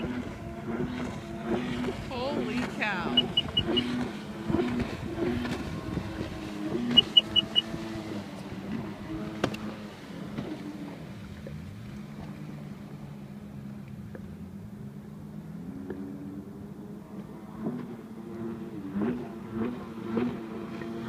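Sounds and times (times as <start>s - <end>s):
watercraft engine droning: 0.0s - 21.0s
quick high beeps: 3.0s - 3.9s, 6.9s - 7.7s.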